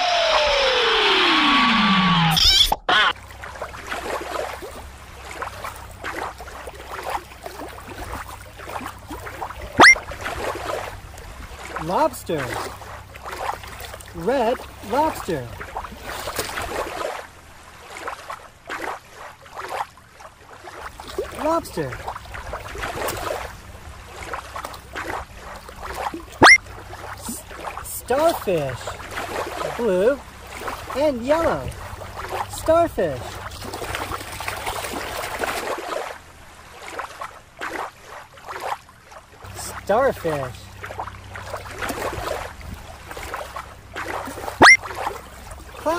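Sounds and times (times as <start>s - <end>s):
rising whistle: 0.0s - 3.1s, 9.8s - 10.0s
waves lapping against rocks: 3.1s - 45.9s
toy splashing into water: 9.8s - 10.5s, 26.0s - 26.6s, 44.1s - 45.1s.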